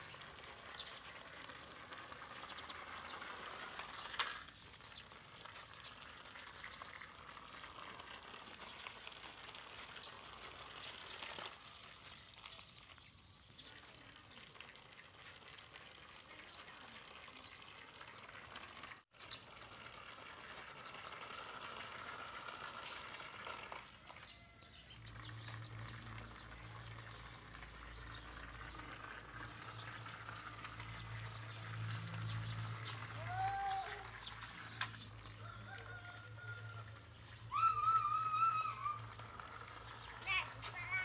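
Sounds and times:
short high calls: 0:37.5 - 0:39.2.

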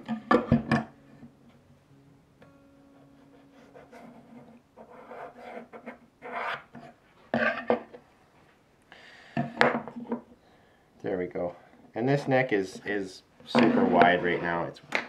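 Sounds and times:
pencil scratching on wood: 0:03.3 - 0:06.8
steel square scraping on board: 0:03.9 - 0:07.8, 0:13.6 - 0:14.7.

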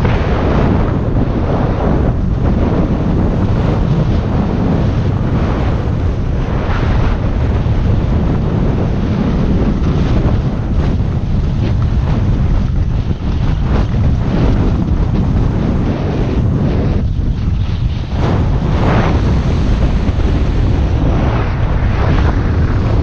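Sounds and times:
wind on microphone: 0:00.0 - 0:23.0
skis scraping on snow: 0:03.2 - 0:23.0.

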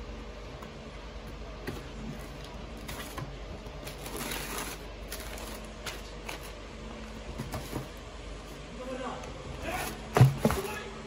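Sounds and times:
steady low hum: 0:00.0 - 0:11.0
tissue paper crinkling: 0:03.8 - 0:06.6.

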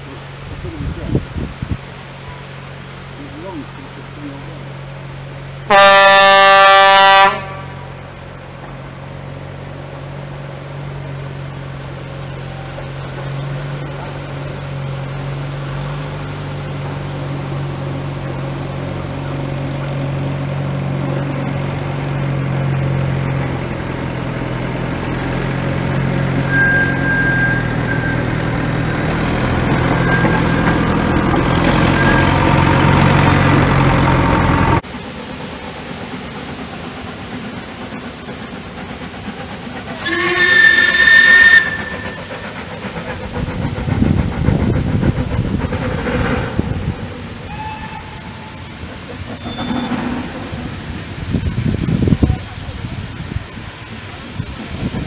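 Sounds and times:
railcar engine running: 0:00.0 - 0:55.0
railcar horn blast: 0:05.7 - 0:08.0, 0:26.4 - 0:28.4, 0:40.0 - 0:42.3, 0:47.5 - 0:48.7.

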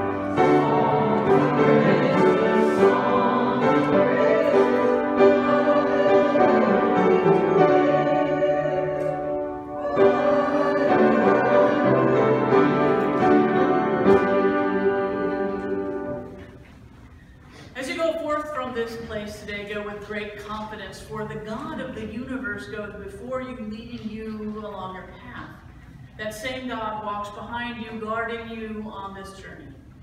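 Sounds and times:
congregation singing a hymn: 0:00.0 - 0:16.6
upright piano accompaniment: 0:00.0 - 0:16.9.

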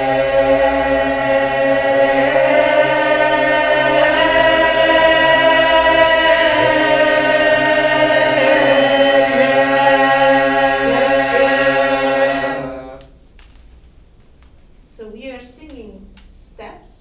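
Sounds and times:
mixed choir singing unaccompanied: 0:00.0 - 0:13.1.

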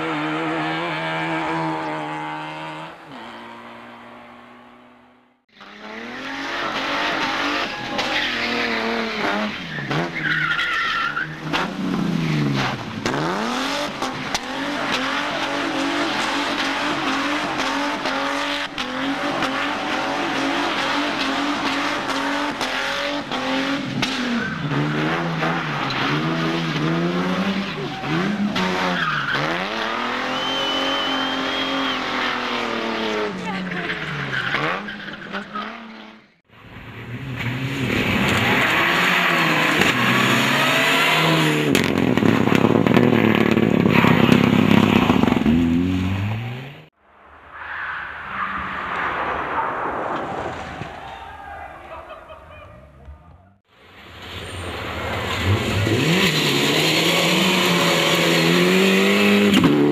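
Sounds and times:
rally car engine passing: 0:00.0 - 0:10.3
rally car engines revving: 0:00.0 - 0:46.9, 0:54.1 - 0:59.9.

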